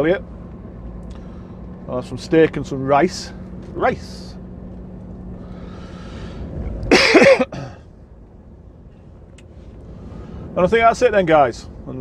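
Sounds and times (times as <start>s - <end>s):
lorry cab rumble: 0.0s - 12.0s
man coughing: 6.9s - 7.9s.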